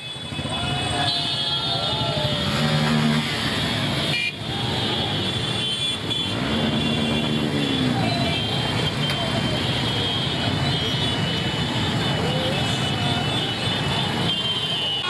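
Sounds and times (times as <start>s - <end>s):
horns tooting: 0.0s - 15.0s
motorcycle engines running: 0.0s - 15.0s
engines revving: 2.0s - 4.1s, 5.4s - 14.3s.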